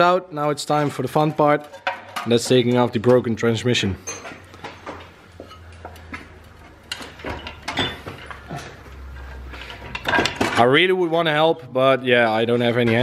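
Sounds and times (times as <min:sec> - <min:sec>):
metal clinks and knocks: 0:01.3 - 0:03.2, 0:04.0 - 0:10.7.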